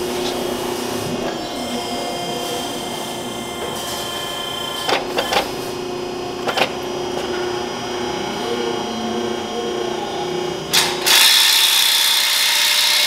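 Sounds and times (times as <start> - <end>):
tube bender humming: 0.0 - 11.1.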